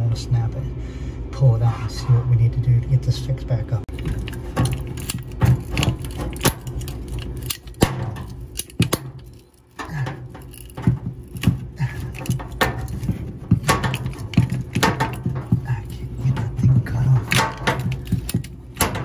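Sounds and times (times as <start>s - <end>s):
steady low hum: 0.0s - 19.0s
hands rattling pipe fitting: 3.9s - 19.0s.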